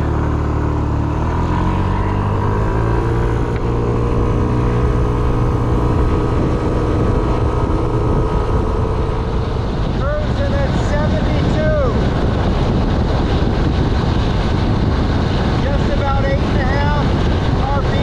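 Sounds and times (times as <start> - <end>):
scooter engine accelerating: 0.0 - 10.0.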